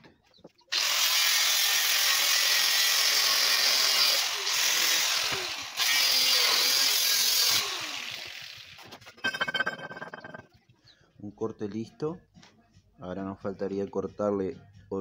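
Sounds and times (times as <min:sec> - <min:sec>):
angle grinder cutting steel: 0:00.7 - 0:10.4
grinder disc winding down: 0:03.1 - 0:10.4.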